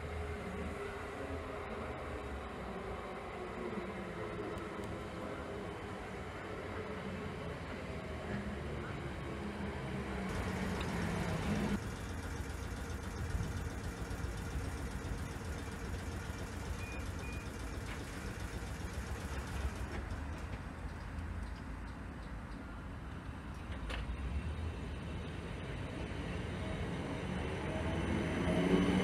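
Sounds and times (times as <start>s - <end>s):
train equipment hum and rumble: 0.1s - 26.4s
electric train approaching: 10.3s - 21.1s
short high beeps: 16.7s - 17.5s.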